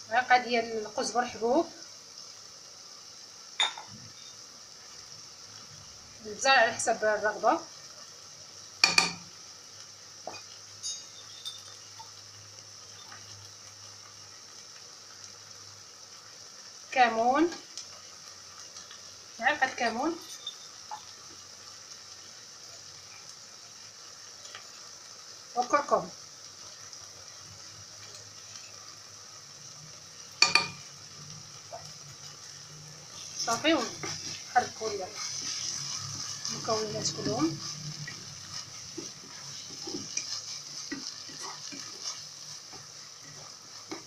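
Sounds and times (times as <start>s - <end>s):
faint sizzle in pot: 0.0s - 44.0s
kitchen utensils clinking: 3.6s - 4.0s, 10.8s - 11.8s, 30.4s - 30.8s.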